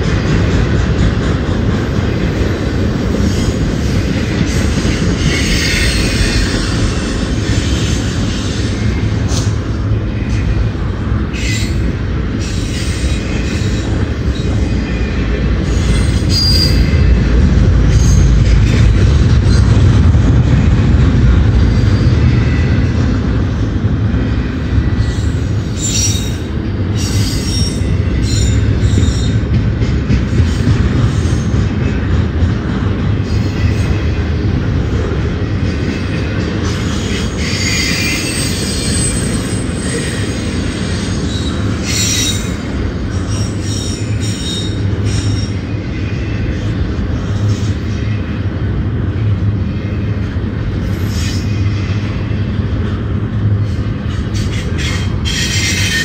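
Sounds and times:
train wheels rumbling on rail: 0:00.0 - 0:56.0
metallic wheel squeals: 0:15.7 - 0:17.0, 0:25.0 - 0:29.4, 0:37.0 - 0:42.6, 0:54.4 - 0:56.0.

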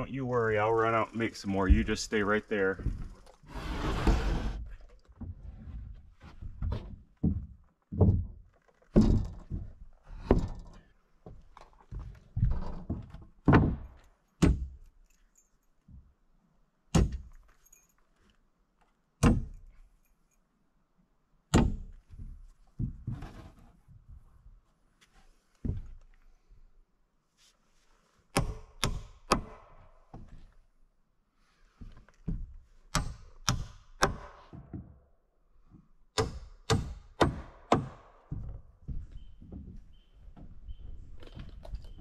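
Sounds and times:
hammer strikes nailing: 0:28.3 - 0:29.9, 0:32.9 - 0:34.6, 0:36.2 - 0:38.3.

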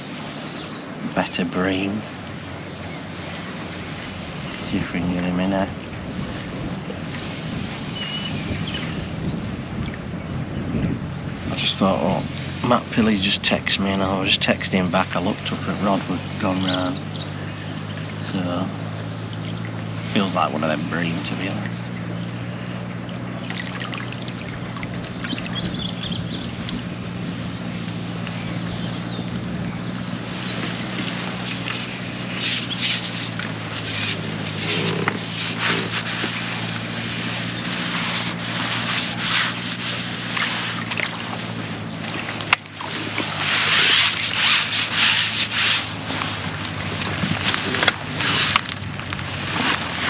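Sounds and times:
wind rumble: 0:00.0 - 0:50.0
clothing and tackle rustling: 0:29.0 - 0:50.0.

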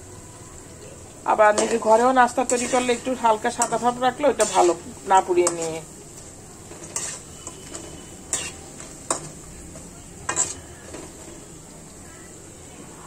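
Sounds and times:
dough frying in oil: 0:00.0 - 0:13.0
utensil knocking and scraping pan: 0:06.8 - 0:09.3.

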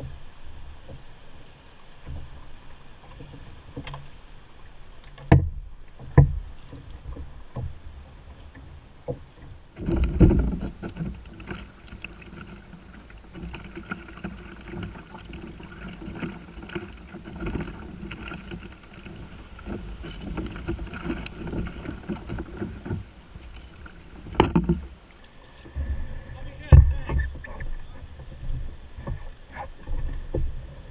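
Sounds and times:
water rushing along canoe hull: 0:00.0 - 0:30.9
knocks on canoe hull: 0:09.8 - 0:12.5, 0:13.5 - 0:25.0.

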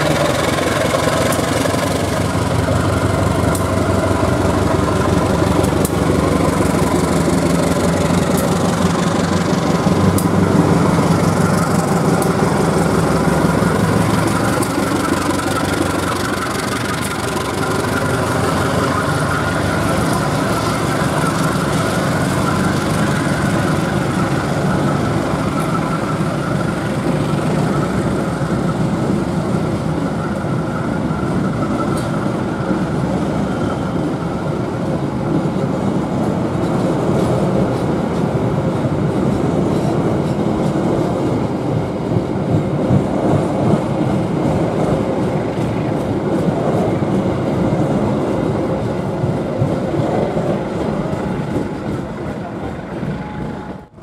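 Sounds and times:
diesel locomotive engine running: 0:00.0 - 0:54.0
train coaches rolling past: 0:00.0 - 0:54.0.

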